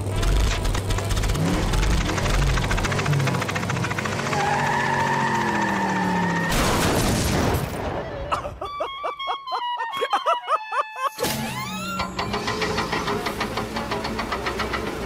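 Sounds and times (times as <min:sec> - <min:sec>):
cartoon cat staccato laughter: 0:08.1 - 0:11.8
cartoon music: 0:08.3 - 0:12.4.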